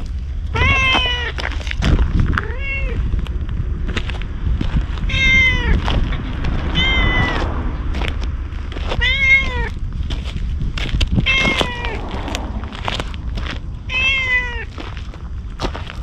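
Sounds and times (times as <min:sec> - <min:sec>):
cat meowing: 0:00.5 - 0:01.4, 0:02.4 - 0:03.1, 0:05.0 - 0:07.6, 0:09.0 - 0:09.8, 0:11.2 - 0:12.0, 0:13.9 - 0:14.7.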